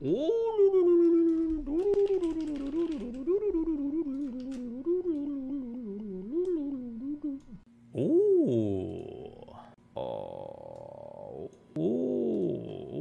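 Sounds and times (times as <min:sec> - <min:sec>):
man's long wordless ooo: 0:00.0 - 0:13.0
faint keyboard clicks: 0:01.0 - 0:05.4.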